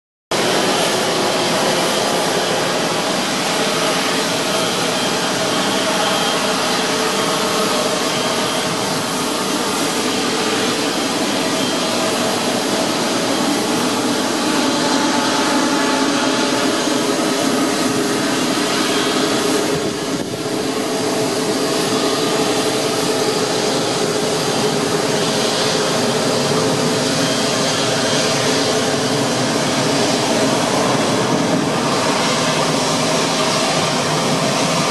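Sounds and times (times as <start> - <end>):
jet engine whine and rush: 0.3 - 34.9.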